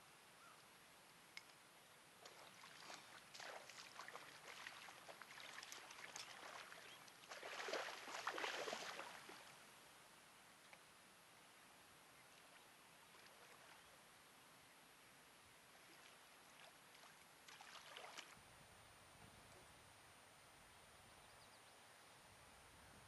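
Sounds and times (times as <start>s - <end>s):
water splashing and sloshing: 2.2s - 9.5s, 15.9s - 18.4s.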